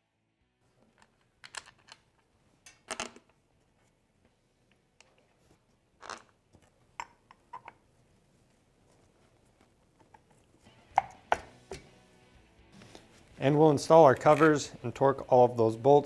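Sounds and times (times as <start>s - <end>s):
metal parts clicking and knocking: 0.8s - 3.4s.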